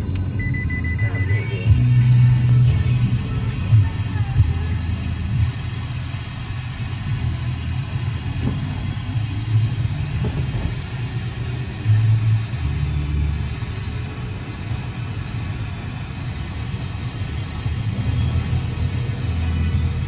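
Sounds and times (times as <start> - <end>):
radio static low rumble: 0.0 - 20.0.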